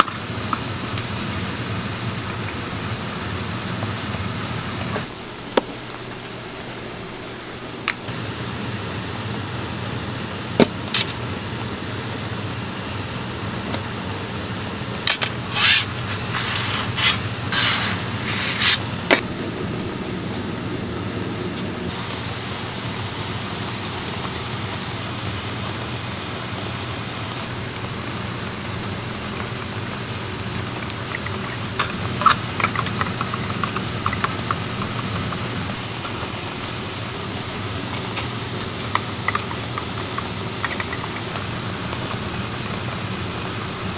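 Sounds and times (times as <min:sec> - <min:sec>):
gas burner hissing: 0:00.0 - 0:43.9
sharp scraping: 0:15.5 - 0:19.2.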